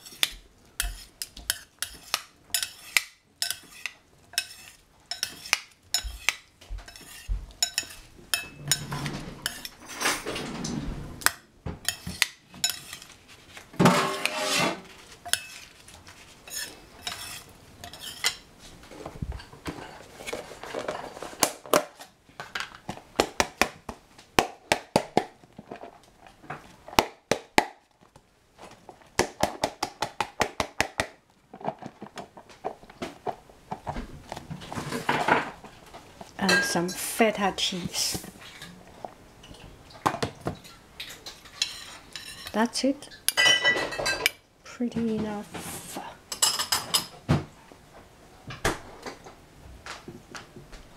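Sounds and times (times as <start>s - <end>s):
spoons clinking on ceramic bowl: 0.8s - 8.9s, 15.3s - 15.7s, 36.4s - 37.1s.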